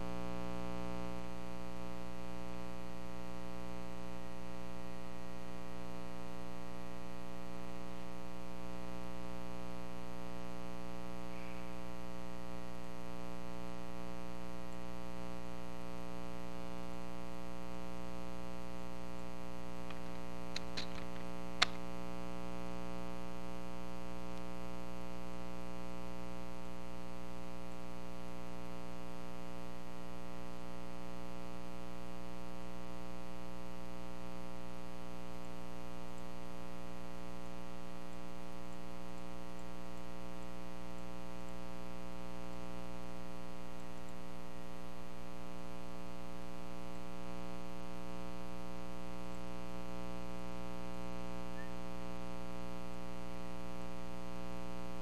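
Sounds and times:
electrical mains hum: 0.0s - 55.0s
short clicks: 19.8s - 21.9s.

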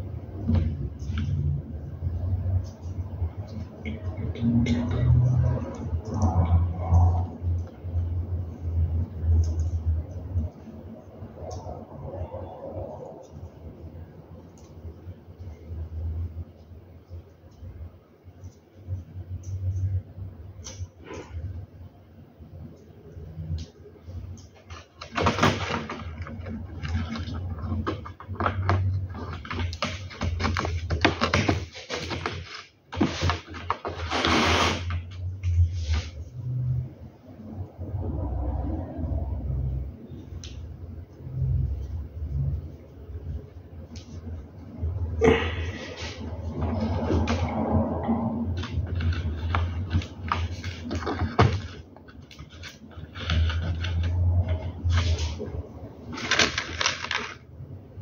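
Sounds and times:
low steady rumble: 35.0s - 56.4s
low hum: 35.1s - 56.4s.

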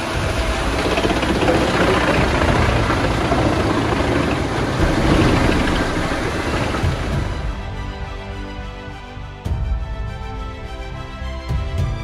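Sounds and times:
tractor engine under load: 0.0s - 7.5s
wood chipper chipping logs: 0.0s - 7.6s.

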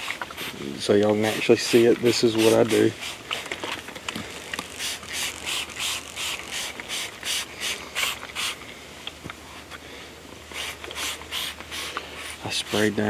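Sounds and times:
spray bottle hissing: 1.3s - 3.4s, 4.7s - 8.6s, 10.5s - 12.9s.

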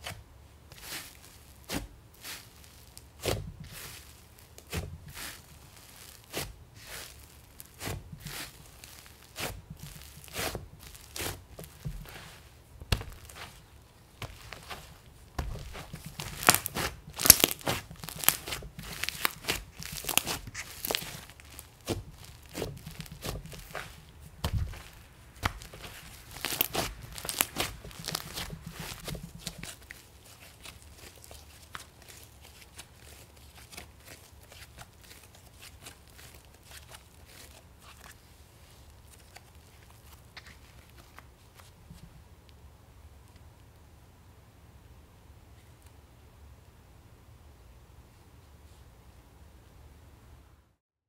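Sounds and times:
sticky slime crackling and popping: 0.8s - 38.1s.

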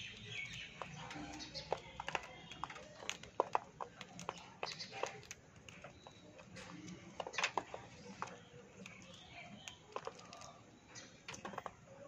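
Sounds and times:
birds cracking a biscuit: 0.0s - 12.0s.

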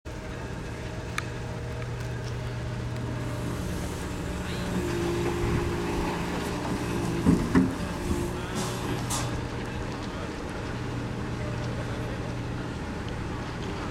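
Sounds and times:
excavator diesel engine running: 0.2s - 13.9s
hydraulic whine: 1.3s - 10.3s.

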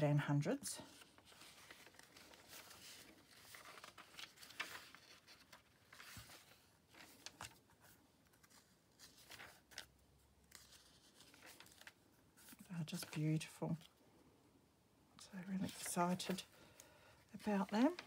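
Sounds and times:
paper pages turning: 0.8s - 13.9s, 17.4s - 18.0s.

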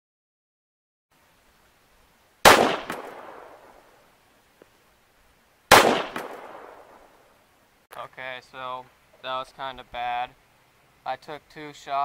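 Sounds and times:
pistol shots with echo: 2.5s - 3.8s, 5.7s - 7.1s.

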